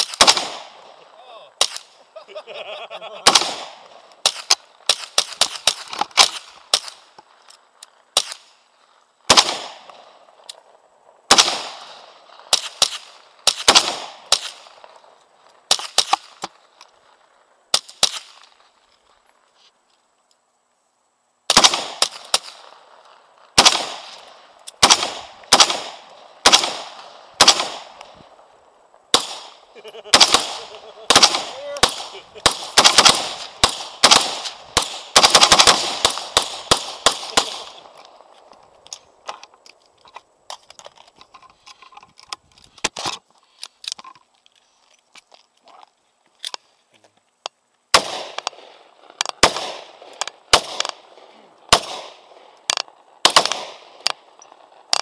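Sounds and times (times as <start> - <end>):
gunshots with echoing tail: 0.0 - 1.0, 3.2 - 7.0, 9.3 - 10.1, 11.3 - 14.7, 23.6 - 24.2, 24.8 - 28.0, 29.1 - 37.9, 48.0 - 48.7, 49.4 - 52.4, 53.2 - 54.1.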